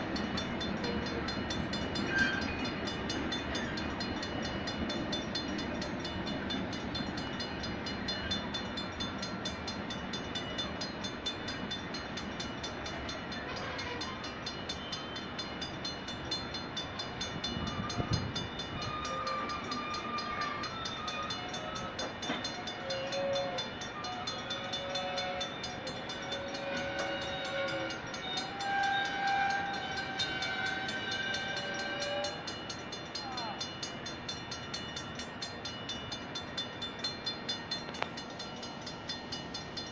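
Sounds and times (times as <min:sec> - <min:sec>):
freight train cars rolling: 0:00.0 - 0:39.9
wheel flanges squealing: 0:00.5 - 0:06.6, 0:16.3 - 0:39.8.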